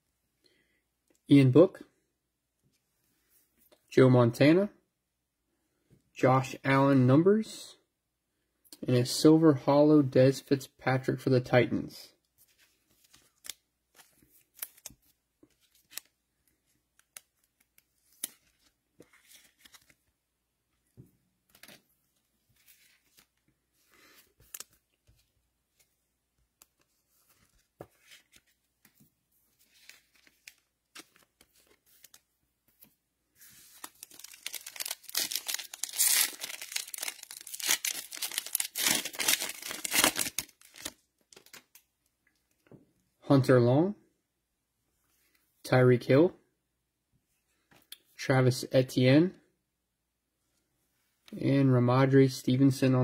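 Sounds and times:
cards being handled: 12.4s - 20.1s, 21.0s - 41.8s
foil wrapper tearing and crinkling: 33.8s - 41.6s.

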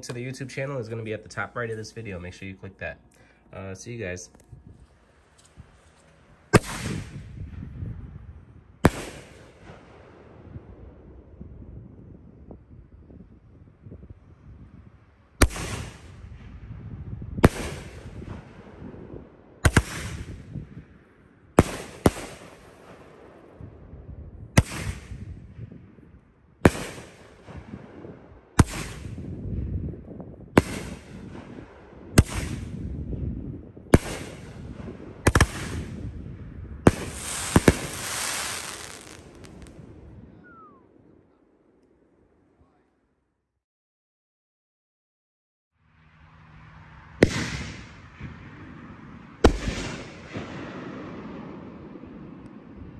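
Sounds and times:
firework crackling: 6.5s - 7.4s, 15.4s - 16.2s, 17.4s - 18.2s, 21.6s - 23.1s, 26.6s - 27.7s, 28.6s - 29.2s, 30.6s - 31.3s, 33.9s - 36.0s, 36.9s - 39.8s
firework launch and burst bangs: 6.5s - 7.8s, 8.8s - 10.2s, 15.4s - 16.6s, 17.4s - 19.0s, 19.6s - 20.7s, 21.6s - 23.2s, 24.5s - 25.8s, 26.6s - 29.4s, 30.5s - 33.1s, 33.9s - 36.2s, 36.8s - 40.0s, 47.2s - 48.6s, 49.4s - 52.2s.

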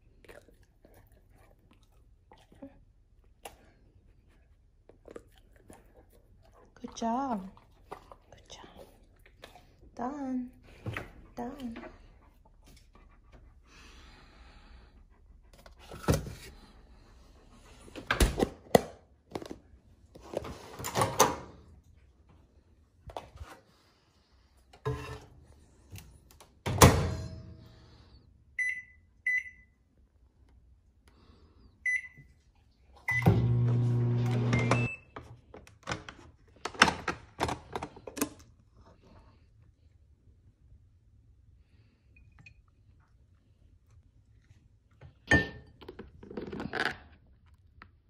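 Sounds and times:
microwave humming: 33.1s - 35.0s
microwave keypad beeping: 34.3s - 35.0s.

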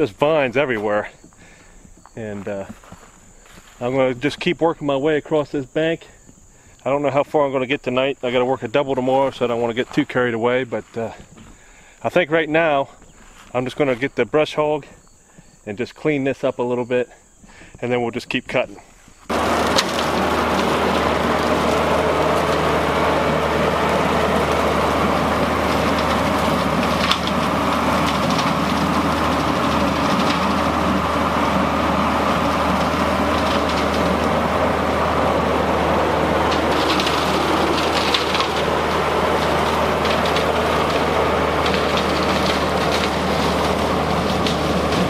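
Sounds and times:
tractor diesel engine running: 0.0s - 16.4s, 18.6s - 45.0s
brush crackling as chopped: 19.2s - 34.4s, 35.0s - 45.0s.

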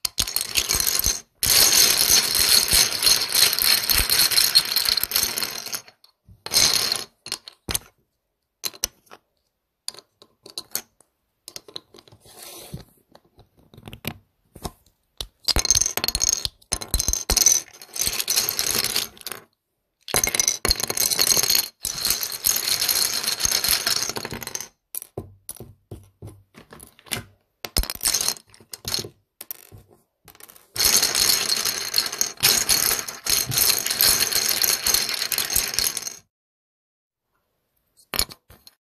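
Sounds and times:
plastic bricks clattering: 0.0s - 7.9s, 30.4s - 36.2s.

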